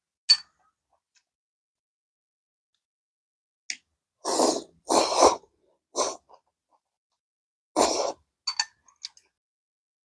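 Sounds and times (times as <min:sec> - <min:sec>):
person slurping noodles: 0:04.2 - 0:06.4, 0:07.8 - 0:08.3.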